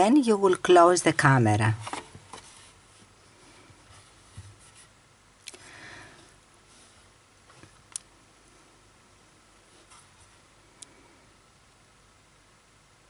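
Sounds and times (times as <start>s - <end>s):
soft rustle: 1.8s - 8.9s, 9.5s - 11.3s.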